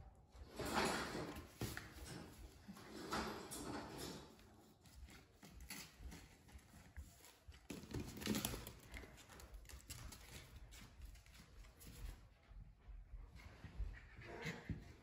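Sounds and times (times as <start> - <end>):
puppies scuffling: 0.3 - 15.0
puppy paws and claws tapping floor: 4.0 - 14.9.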